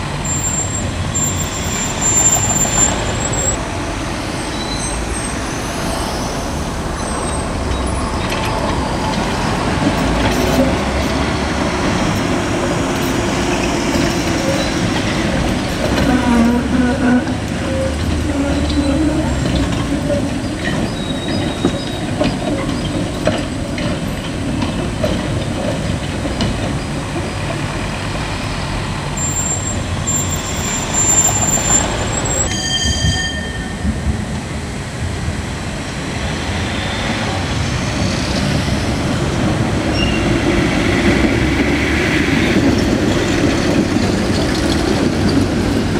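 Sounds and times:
tram wheel and motor rumble: 0.0 - 45.9
high-pitched wheel squeals: 0.2 - 3.6, 4.4 - 6.3, 16.0 - 22.7, 29.2 - 34.1, 39.9 - 40.4.

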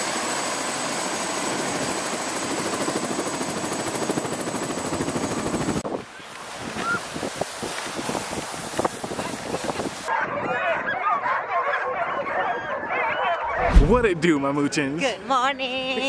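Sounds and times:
helicopter turbine and rotor: 0.0 - 5.8, 7.6 - 10.1.

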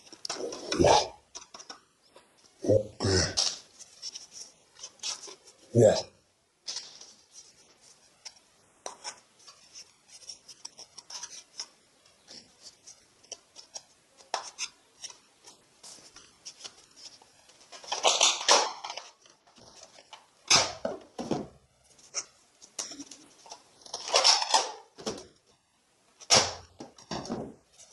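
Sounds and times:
plastic handling clatter: 0.0 - 1.9, 16.1 - 21.5.

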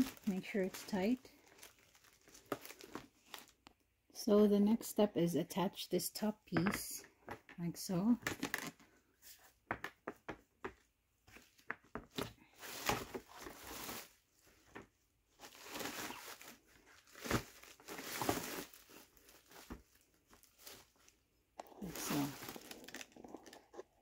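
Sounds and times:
plastic wrap crinkling: 0.0 - 3.8, 12.5 - 14.2, 15.4 - 24.0.

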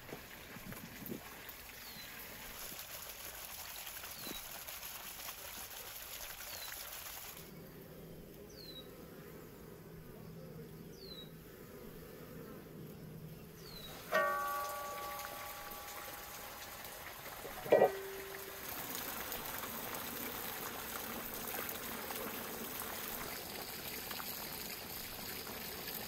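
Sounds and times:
hiss of running water: 0.0 - 7.6, 13.6 - 26.0
metal lid clanging: 14.0 - 18.8.

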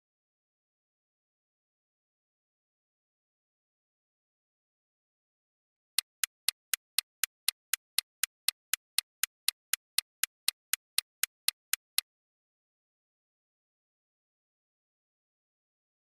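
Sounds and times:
clock-like ticks: 6.0 - 12.1.

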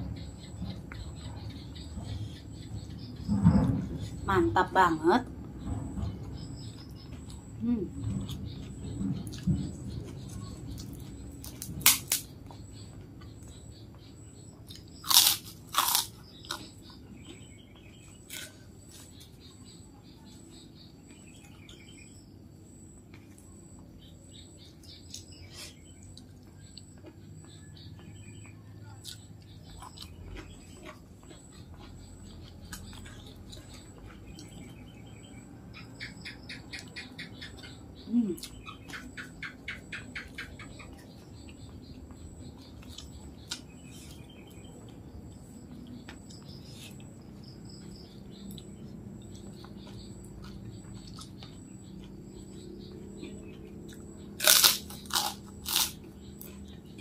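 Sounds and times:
crackers crunching: 10.1 - 12.6, 14.7 - 17.0, 53.2 - 57.0.

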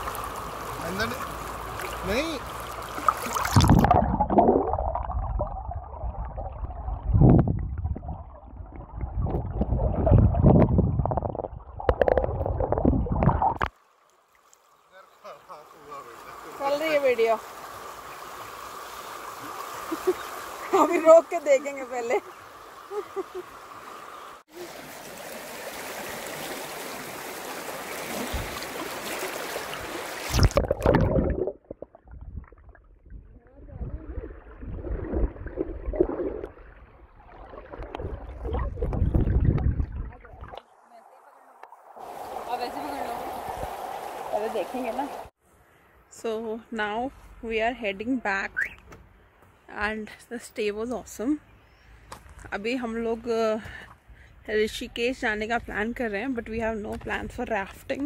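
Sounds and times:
stream rushing over stones: 0.0 - 4.9, 15.6 - 22.9, 23.5 - 31.7, 41.8 - 45.4
muffled underwater stream gurgling: 0.0 - 13.7, 24.0 - 40.8
knocks underwater: 3.4 - 13.7, 30.3 - 33.3, 33.9 - 40.6
muffled underwater sound: 33.2 - 41.6.

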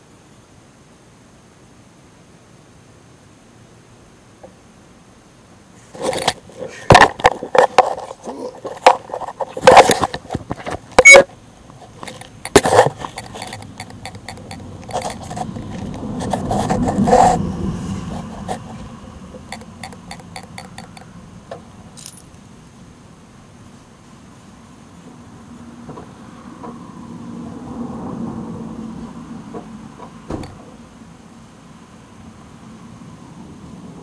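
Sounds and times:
camera handling knocks and scrapes: 6.0 - 17.4
low rumbling noise: 11.4 - 22.0.

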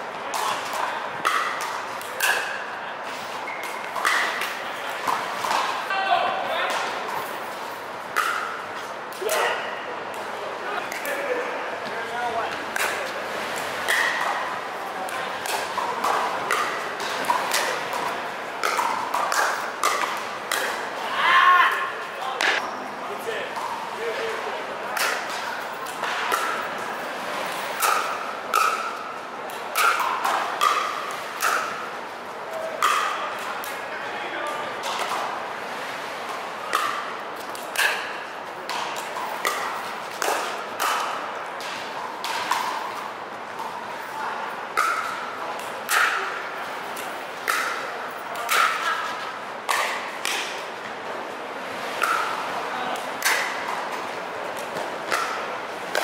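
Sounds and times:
paddles hitting pickleball: 0.2 - 5.9, 6.6 - 22.6, 23.5 - 56.0
paddles hitting plastic ball: 13.8 - 21.0, 32.6 - 33.8, 38.6 - 43.0, 52.0 - 56.0.

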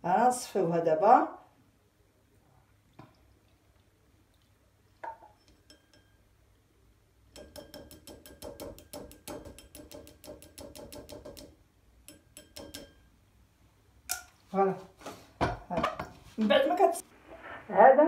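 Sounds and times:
saucepan clinking against strainer: 5.0 - 6.3, 7.3 - 11.4, 12.0 - 13.2.

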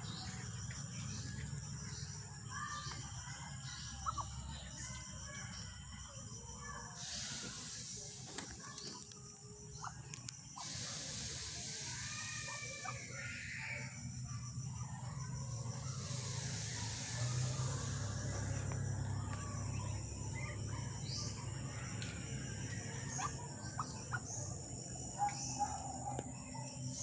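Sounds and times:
birds chirping: 0.0 - 27.0
high hiss: 6.6 - 9.3, 10.0 - 14.0, 15.5 - 20.4.

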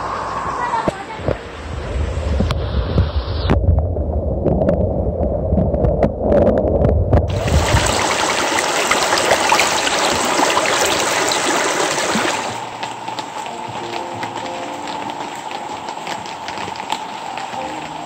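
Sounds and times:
muffled underwater stream rush: 0.0 - 12.7
stream splashing: 7.3 - 12.7.

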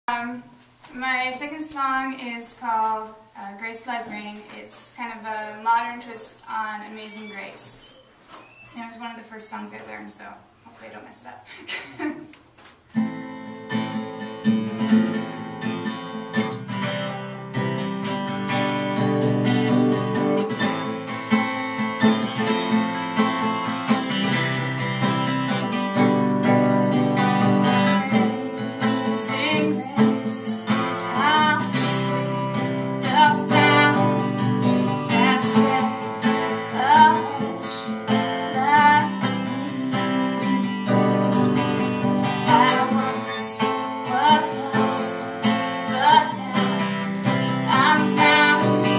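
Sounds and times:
acoustic guitar strumming: 12.9 - 48.9
woman singing: 27.2 - 48.9.

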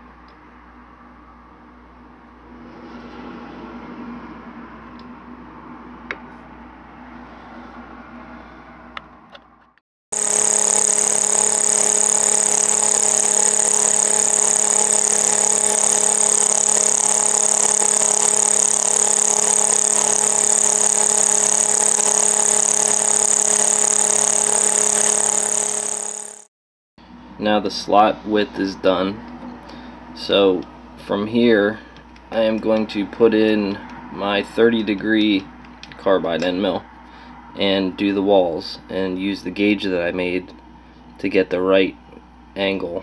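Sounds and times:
high motor whine: 10.1 - 26.5
milling machine cutting metal: 10.2 - 26.4
small clicks: 10.2 - 26.5.

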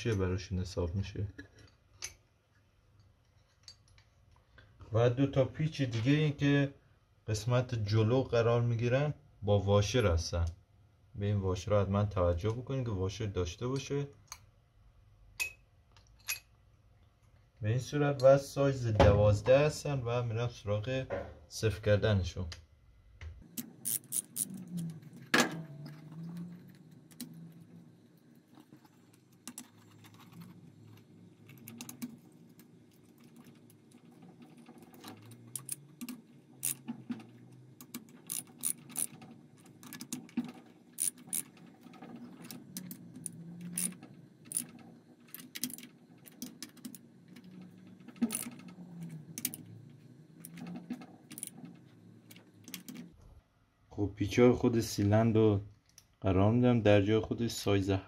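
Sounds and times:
ratchet wrench clicking: 23.6 - 24.8, 35.6 - 36.8, 37.8 - 39.2, 41.0 - 41.5, 42.8 - 44.7, 48.2 - 48.6, 51.3 - 51.6.

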